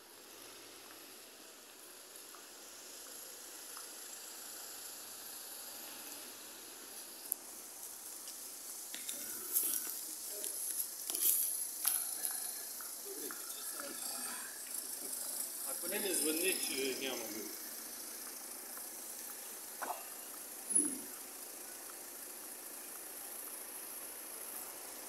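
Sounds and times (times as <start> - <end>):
city street hiss: 0.0 - 25.0.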